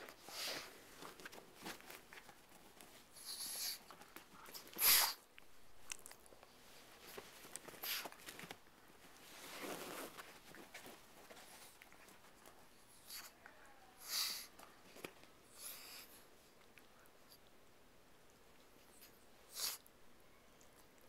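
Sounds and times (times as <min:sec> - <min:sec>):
dog sniffing and snuffling: 0:00.0 - 0:05.2, 0:06.5 - 0:13.4, 0:14.0 - 0:16.5, 0:18.6 - 0:19.9.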